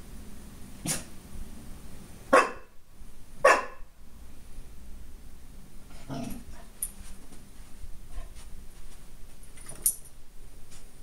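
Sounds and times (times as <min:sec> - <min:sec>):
puppy barking: 0:02.3 - 0:02.8, 0:03.4 - 0:03.9.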